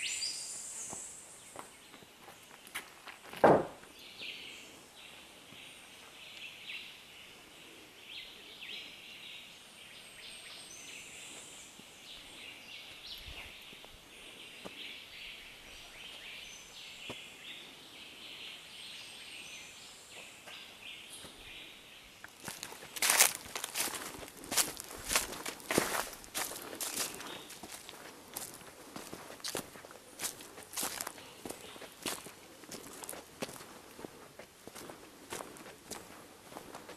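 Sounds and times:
sharp knock: 0:03.4 - 0:03.8.

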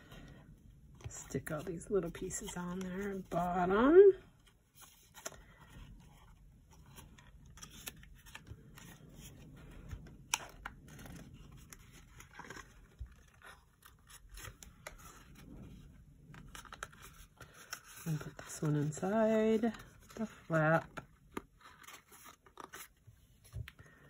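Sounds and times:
cardstock rustling and crinkling: 0:00.0 - 0:24.0.

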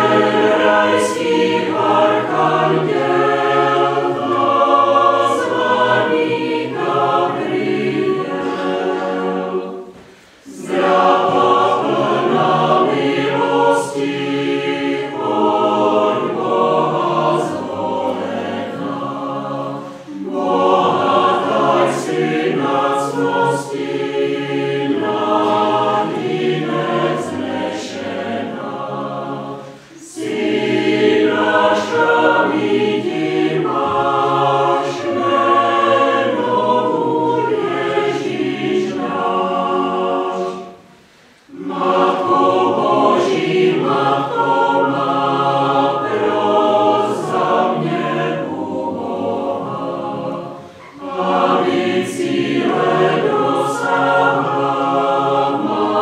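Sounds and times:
mixed choir singing unaccompanied: 0:00.0 - 0:56.0.

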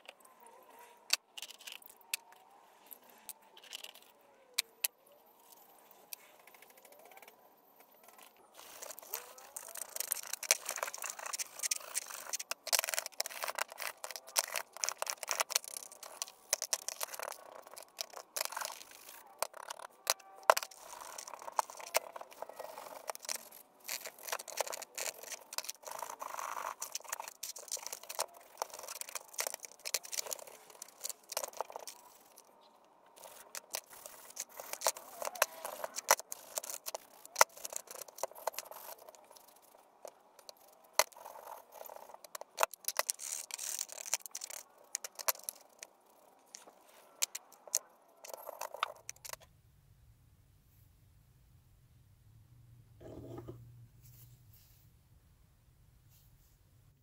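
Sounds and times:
metal scraping and rubbing: 0:53.0 - 0:53.6.

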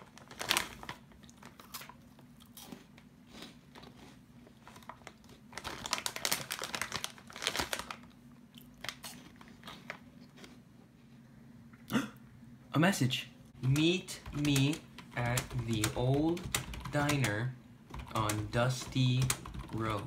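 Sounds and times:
foil snack bag crinkling: 0:00.0 - 0:02.0, 0:03.7 - 0:10.0
crunching and chewing: 0:00.0 - 0:10.8.

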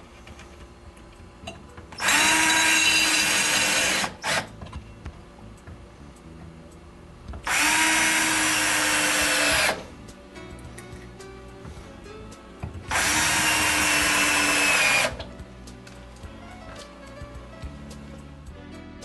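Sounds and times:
cordless drill driving screws: 0:02.0 - 0:04.5, 0:07.5 - 0:09.8, 0:12.9 - 0:15.3.

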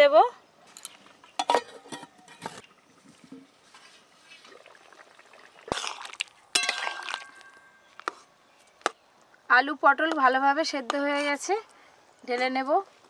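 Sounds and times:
metal ladle stirring in pot: 0:05.6 - 0:08.2.

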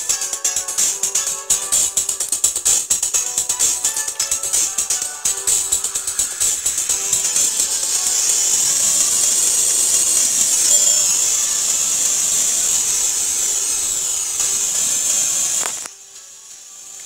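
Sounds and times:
loud steady hiss: 0:00.0 - 0:17.0.

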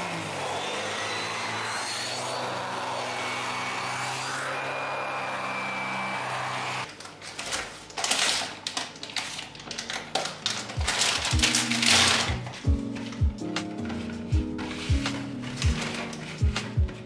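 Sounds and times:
vacuum cleaner running: 0:00.0 - 0:06.9
foil packets crinkling: 0:06.9 - 0:17.0
background music with bass: 0:10.8 - 0:17.0.

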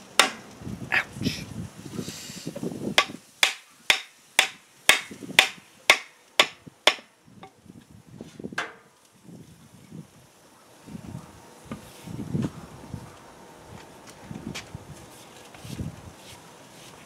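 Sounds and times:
mallet striking wooden handle: 0:00.2 - 0:00.4, 0:03.0 - 0:07.1.

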